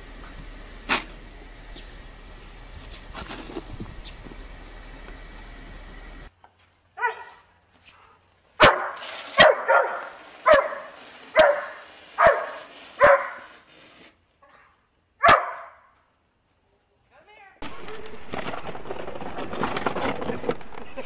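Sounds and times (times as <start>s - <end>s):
snow shovel scraping snow: 2.7s - 4.4s, 8.7s - 14.2s, 17.6s - 21.0s
dog barking: 7.0s - 7.5s, 8.6s - 13.5s, 15.2s - 15.9s.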